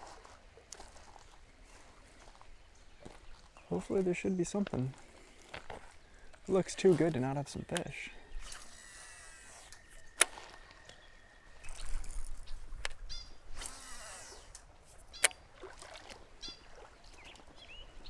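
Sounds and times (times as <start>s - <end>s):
fishing reel clicks: 7.7s - 10.4s, 11.8s - 15.4s
faint bird chirps: 9.6s - 13.4s.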